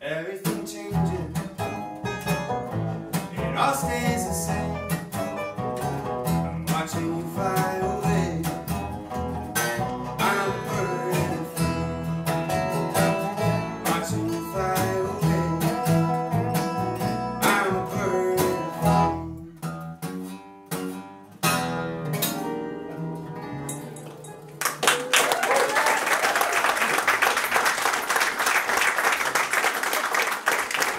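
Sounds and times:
upright bass: 0.0s - 24.9s
resonator guitar: 0.0s - 25.0s
acoustic guitar: 0.0s - 25.1s
banjo rolls: 0.4s - 19.9s.

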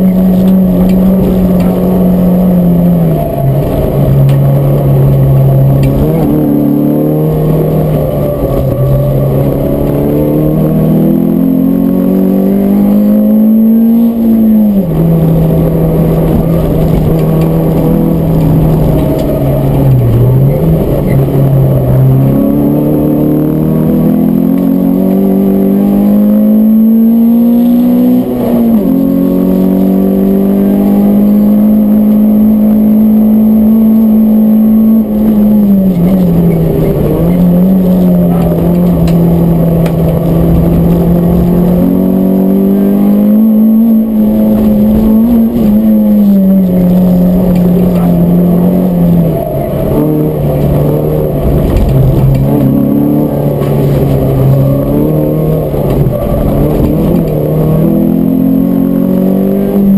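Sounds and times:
car engine under hard driving: 0.0s - 59.9s.

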